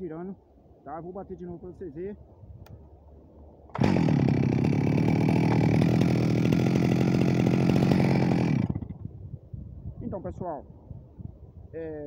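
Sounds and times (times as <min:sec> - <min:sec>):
chainsaw engine revving: 0:03.7 - 0:09.0.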